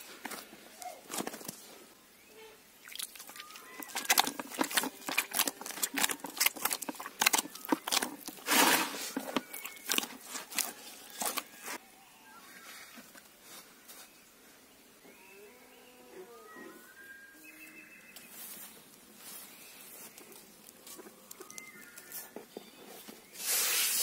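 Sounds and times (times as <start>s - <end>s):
hands kneading sticky dough: 2.9s - 11.8s.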